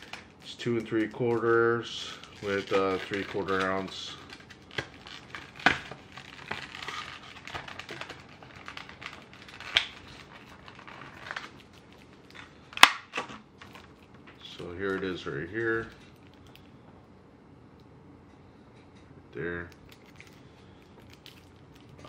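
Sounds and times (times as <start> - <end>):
plastic package crinkling: 0.0 - 16.7, 19.8 - 22.0
plastic snapping: 2.6 - 14.4.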